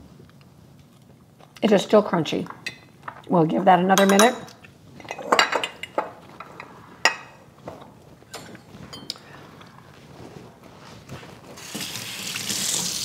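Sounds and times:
fork clinking against ceramic bowls: 8.3s - 9.4s
running tap hissing into sink: 11.6s - 13.0s.

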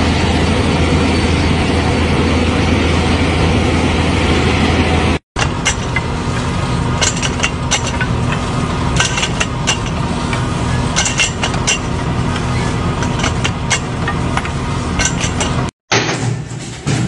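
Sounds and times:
tractor engine running: 0.0s - 17.0s
wooden stakes and metal clacking: 5.4s - 17.0s.

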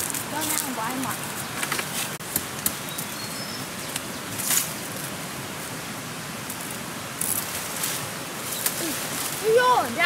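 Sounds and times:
plant stems rustling: 0.0s - 2.2s, 6.5s - 10.0s
steady outdoor hiss: 0.0s - 10.0s.

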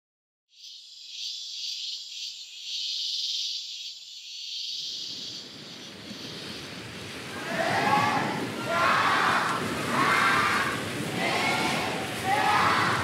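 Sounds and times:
insects shrilling: 0.5s - 6.9s
broad rushing noise: 4.8s - 13.0s.

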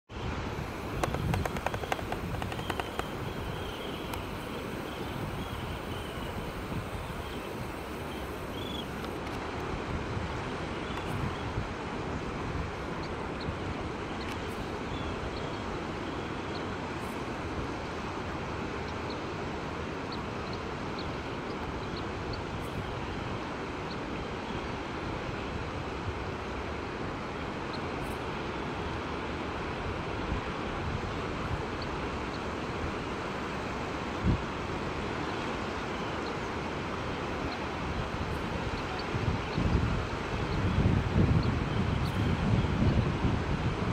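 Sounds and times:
wind: 0.0s - 43.9s
shorebirds chirping: 0.5s - 9.4s.

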